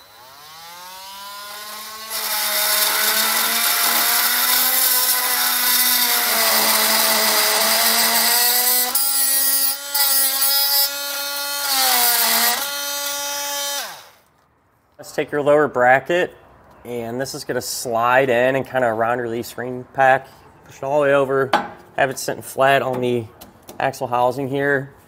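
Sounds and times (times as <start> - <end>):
oscillating multi-tool buzzing whine: 0.0 - 14.2
tool grinding and scraping material: 0.0 - 14.3.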